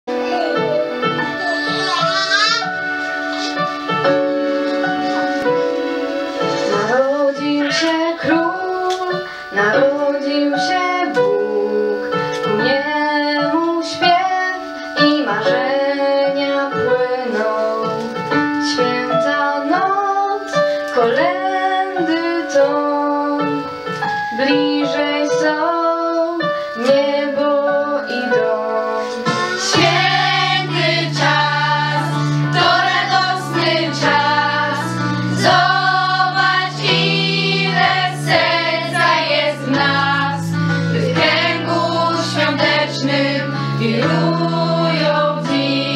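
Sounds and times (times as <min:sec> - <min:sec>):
instrumental accompaniment: 0:00.1 - 0:45.9
girl singing into a microphone: 0:06.6 - 0:23.7
girls singing together: 0:29.2 - 0:45.9.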